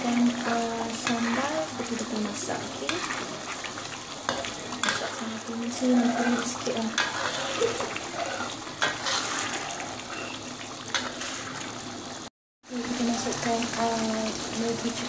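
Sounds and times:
food bubbling and sizzling in a wok: 0:00.0 - 0:15.0
spatula knocking and scraping pan: 0:02.8 - 0:03.3, 0:04.2 - 0:09.6.

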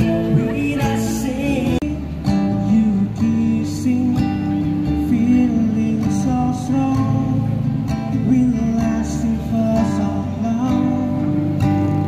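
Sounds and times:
person singing: 0:00.0 - 0:02.1
guitars strummed and plucked: 0:00.0 - 0:12.0.

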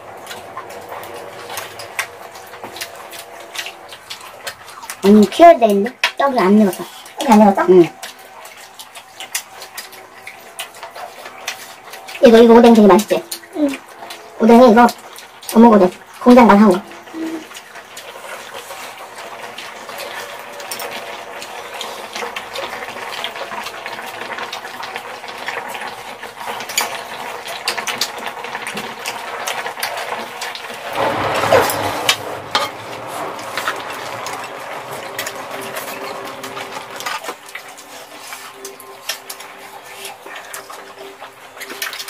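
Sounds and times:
chopsticks and spoons scraping pan: 0:30.9 - 0:40.9.

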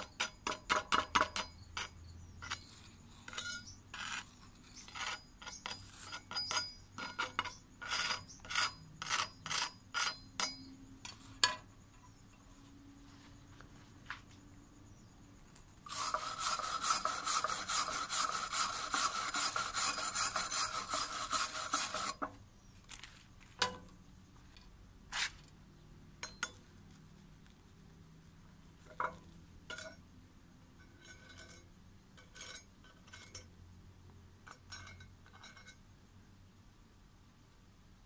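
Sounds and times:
tool scraping steel welds: 0:00.0 - 0:11.7, 0:15.8 - 0:22.3, 0:30.9 - 0:33.5.

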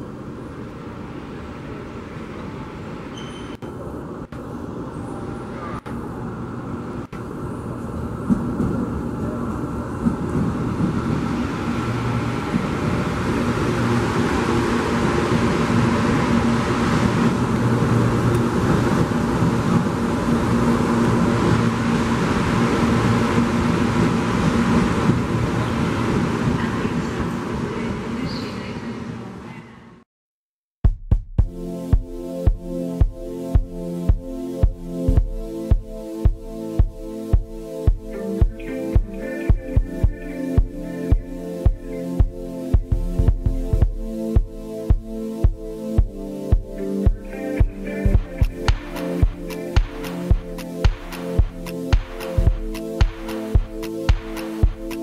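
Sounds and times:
electric train rolling in: 0:00.0 - 0:29.5, 0:46.8 - 0:55.0.

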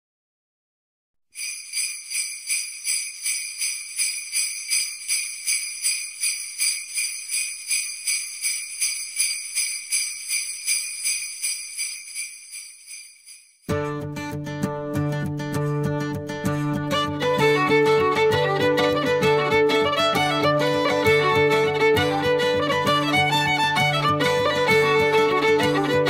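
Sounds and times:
jingle bells shaking: 0:01.4 - 0:13.7.

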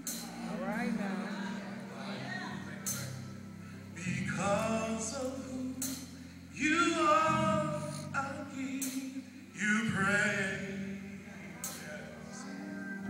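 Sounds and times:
low accompaniment: 0:00.0 - 0:13.0
man singing gospel song: 0:03.8 - 0:13.0.

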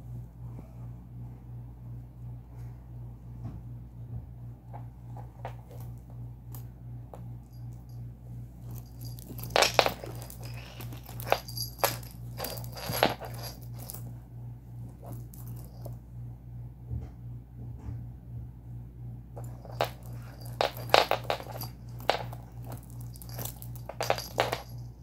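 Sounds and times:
steady low hum: 0:00.0 - 0:25.0
zipper clicks and rattles: 0:08.7 - 0:14.0, 0:14.9 - 0:15.9, 0:19.4 - 0:25.0.

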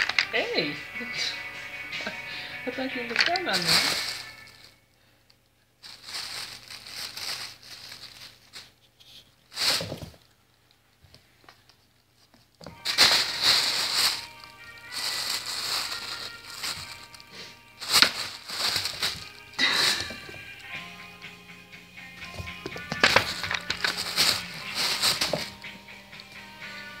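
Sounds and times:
plastic bag crinkling: 0:00.0 - 0:00.4, 0:02.8 - 0:04.8, 0:05.8 - 0:08.9, 0:09.5 - 0:10.3, 0:12.6 - 0:20.8, 0:22.2 - 0:26.7.

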